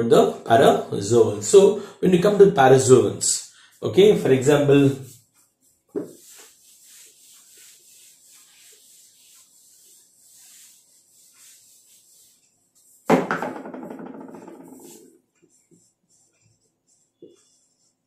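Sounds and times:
eraser wiping whiteboard: 2.8 - 13.1, 14.3 - 18.0.

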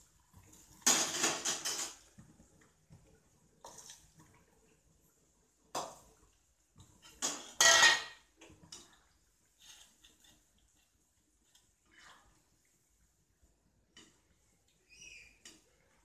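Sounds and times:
metal utensils clattering in bowl: 0.8 - 2.1, 7.0 - 9.0.

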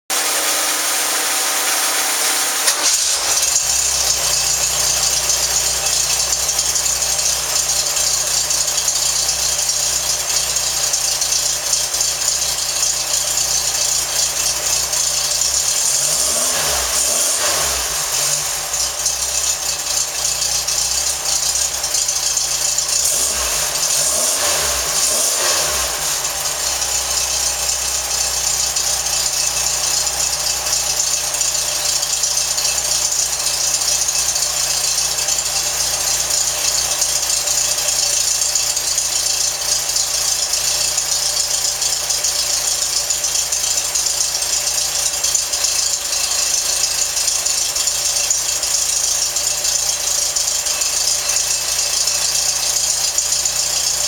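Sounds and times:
engine idling and revving: 0.0 - 54.0.

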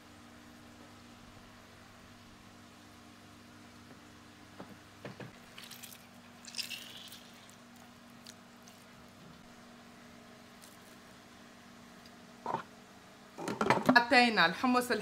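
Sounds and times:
faint steady hum: 0.0 - 15.0
wet squelch of lemon juice: 5.5 - 9.0.

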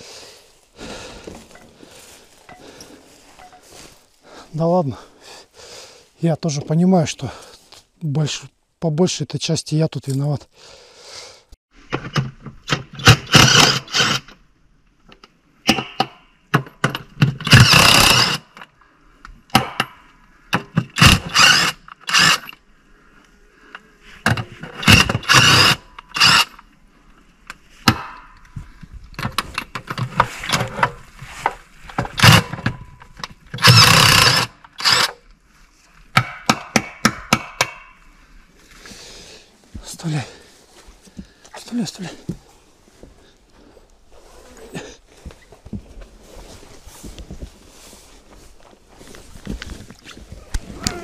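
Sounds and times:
impact wrench rattling: 33.6 - 35.2.

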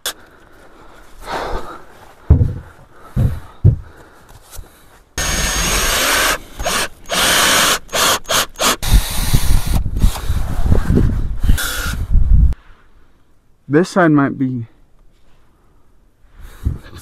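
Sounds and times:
low clunks: 2.2 - 4.0
knocks: 2.3 - 3.9
power drill driving screws: 5.2 - 10.3, 11.5 - 12.0.

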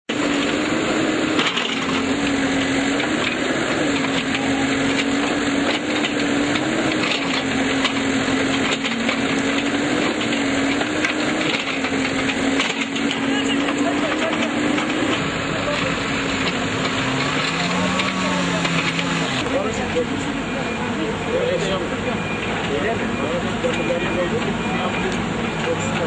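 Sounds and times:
diesel engine of heavy machinery: 0.0 - 26.0.

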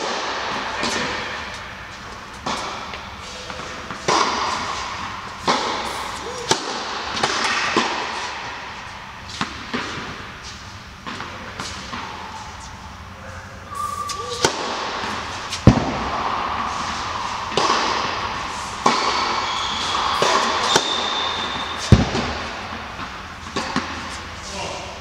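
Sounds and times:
tennis racket strikes: 2.3 - 12.8, 13.7 - 24.4
tennis ball bounces: 13.8 - 24.2.

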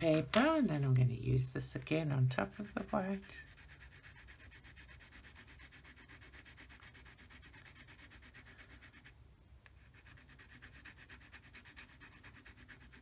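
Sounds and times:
pencil scribbling on paper: 2.2 - 9.2, 9.8 - 13.0.

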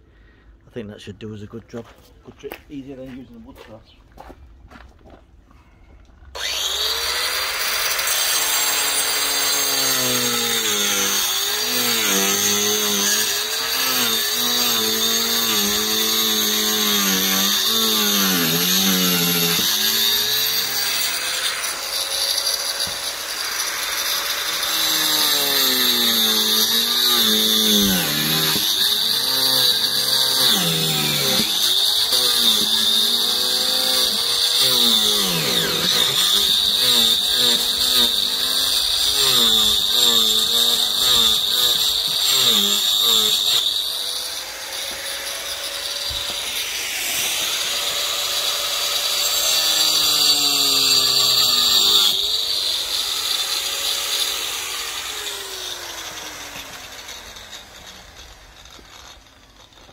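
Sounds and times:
angle grinder cutting board: 6.4 - 59.9.

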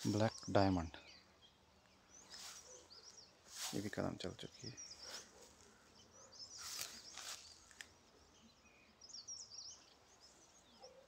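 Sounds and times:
small birds chirping: 0.0 - 11.0
brief rustles: 6.6 - 7.9.

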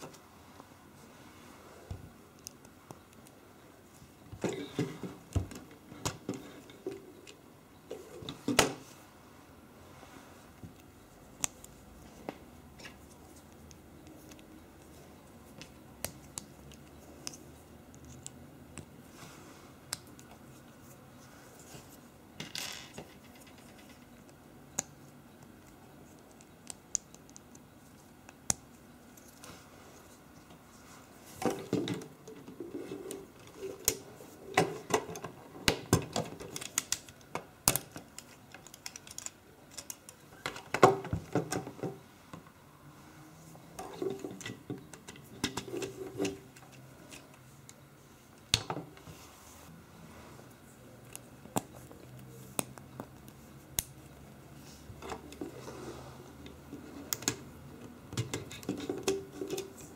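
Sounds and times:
plastic parts clicking: 34.6 - 41.7.

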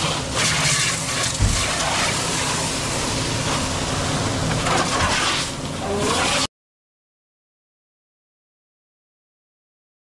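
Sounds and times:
steady motor hum: 0.0 - 6.5
low thump: 1.4 - 1.6.

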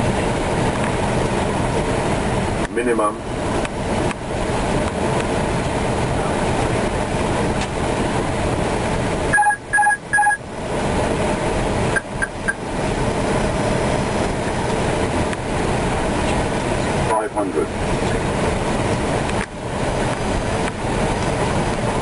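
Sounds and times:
airflow and engine rushing: 0.0 - 22.0
short electronic alert beeps: 9.3 - 10.4.

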